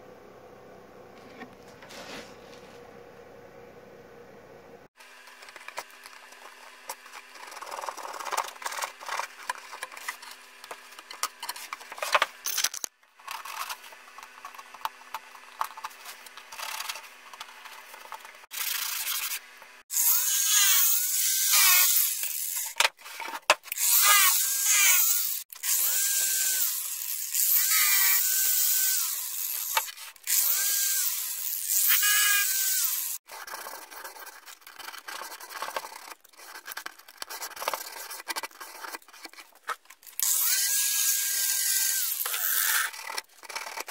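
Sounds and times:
faint steady hum: 0.0 - 12.4
plywood scraping against plywood: 1.2 - 2.7.

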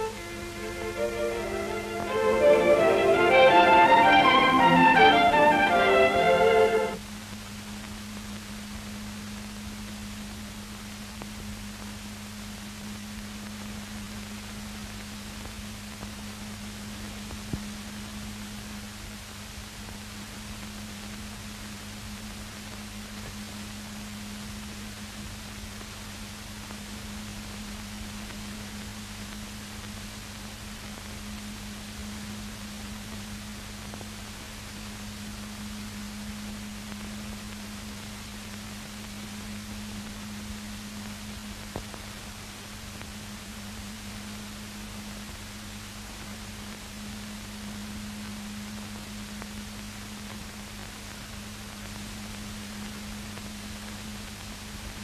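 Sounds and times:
film soundtrack hiss: 0.0 - 55.0
low constant hum: 0.0 - 55.0.

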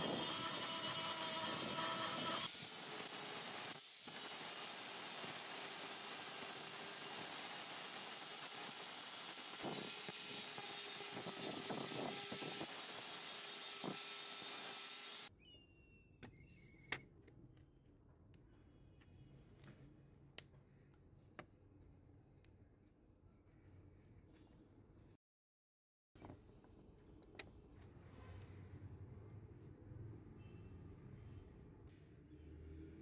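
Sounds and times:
angle grinder sanding metal: 0.0 - 15.3.

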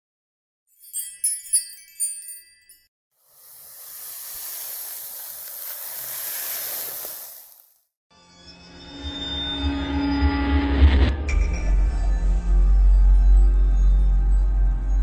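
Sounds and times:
high tinkling chimes: 0.7 - 6.2.

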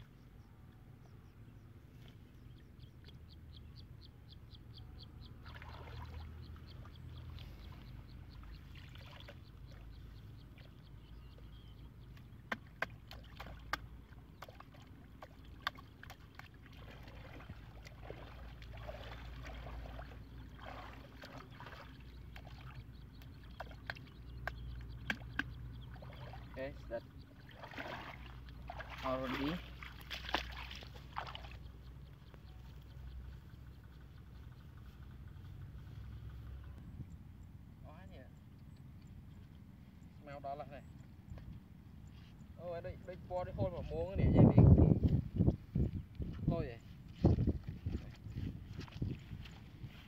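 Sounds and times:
hands sloshing through muddy water: 5.3 - 10.8, 12.0 - 32.4, 46.9 - 50.0
sharp clicks and splashes: 12.1 - 26.6, 27.4 - 31.7.

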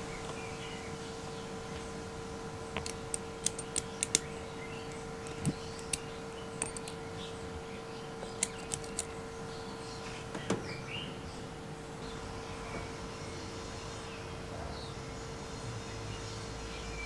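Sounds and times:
steady hum: 0.0 - 17.0
small metal clicks: 2.8 - 7.0, 8.2 - 9.2.

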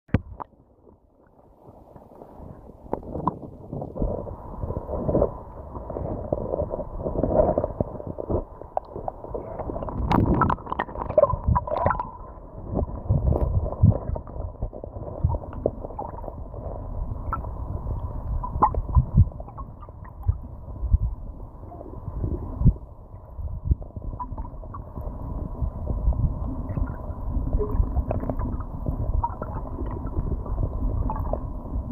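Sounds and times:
muffled flowing water underwater: 0.1 - 31.9.

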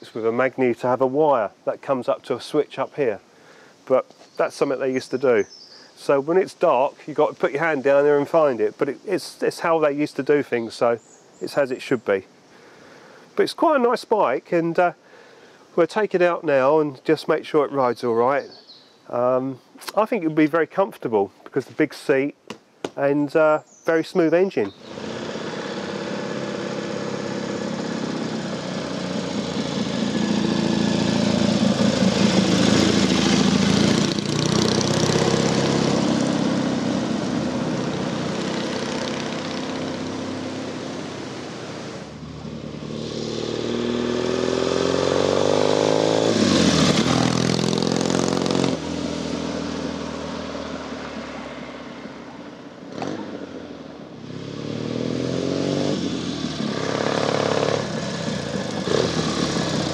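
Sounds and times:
vehicle engine accelerating: 24.8 - 52.1, 52.9 - 59.9.

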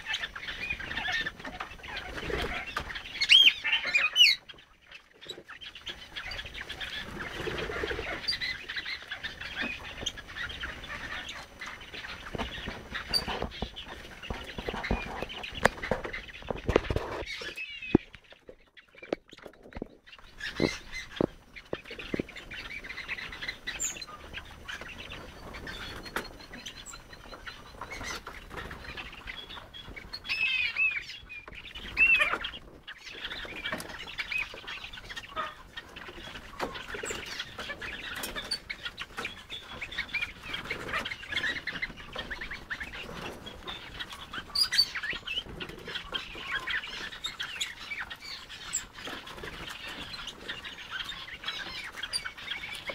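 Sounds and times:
birds chirping and twittering: 0.0 - 52.9
sharp clicks and scratches: 12.0 - 22.4.

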